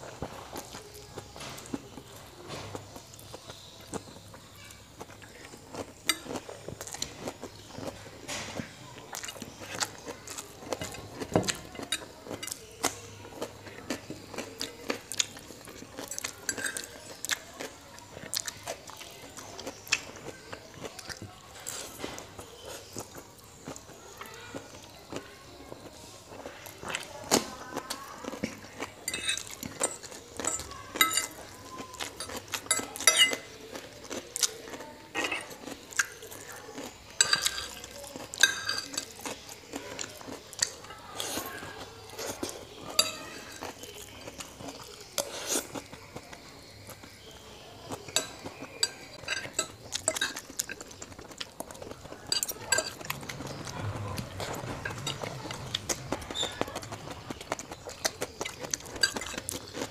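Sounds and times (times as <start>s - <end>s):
cutlery scraping a ceramic plate: 29.1s - 31.4s, 32.2s - 33.5s, 35.1s - 35.6s, 37.2s - 37.8s, 38.4s - 39.3s, 45.2s - 45.8s.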